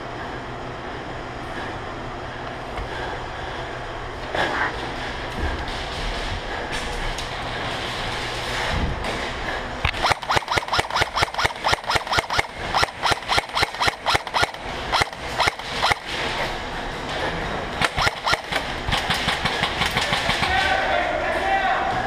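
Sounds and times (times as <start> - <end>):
airsoft rifle shots: 9.9 - 16.2, 17.8 - 20.8.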